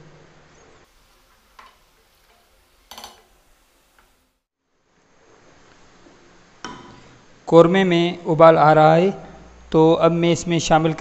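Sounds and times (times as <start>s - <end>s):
spoon knocking against pot: 1.6s - 3.4s.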